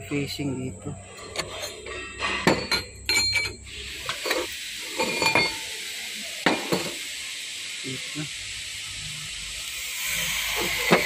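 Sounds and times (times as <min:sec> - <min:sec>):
steady hiss: 0:00.1 - 0:11.0
steel plates clinking and knocking: 0:01.2 - 0:05.7.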